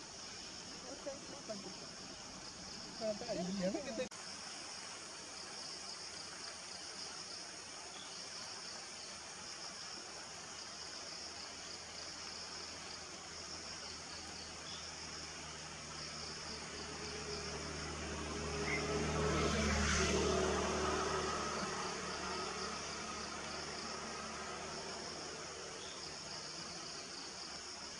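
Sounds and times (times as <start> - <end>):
insect chorus hissing: 0.0 - 27.9.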